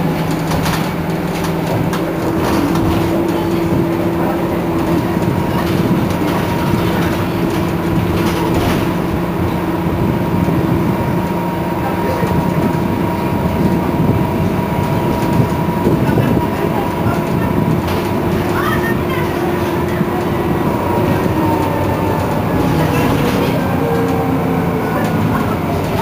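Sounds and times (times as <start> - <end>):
bus whine: 0.0 - 26.0
road rumble: 0.0 - 26.0.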